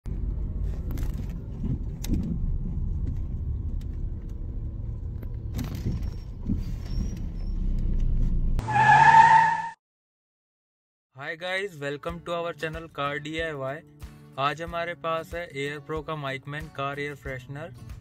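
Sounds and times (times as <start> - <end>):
car engine rumble: 0.1 - 8.9.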